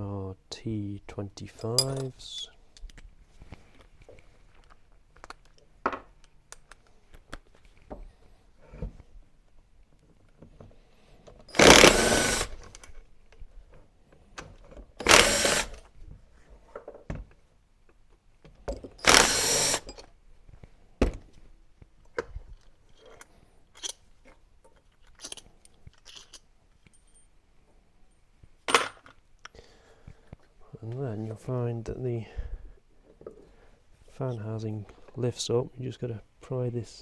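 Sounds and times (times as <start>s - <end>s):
metal parts clinking: 1.6s - 2.5s, 22.6s - 24.0s, 24.8s - 27.3s
power driver spinning screws: 11.5s - 12.8s, 15.0s - 15.8s, 19.0s - 20.0s.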